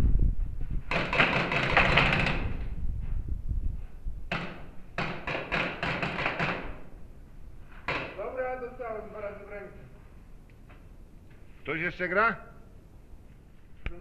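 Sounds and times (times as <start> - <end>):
paintball markers firing: 0.9 - 2.4, 4.3 - 6.9.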